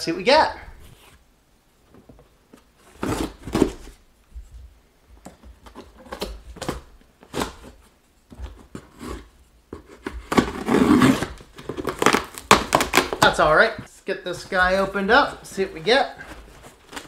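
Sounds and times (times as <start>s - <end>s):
knife slitting packing tape: 10.0s - 13.2s.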